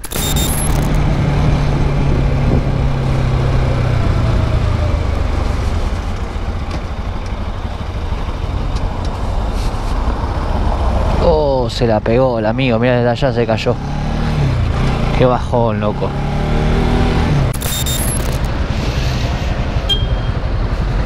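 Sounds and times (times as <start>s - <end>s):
electronic glitch effect: 0.0s - 1.0s, 17.5s - 18.6s
motorcycle engine running: 0.1s - 10.8s, 17.6s - 21.0s
wind rush on microphone: 1.0s - 3.1s.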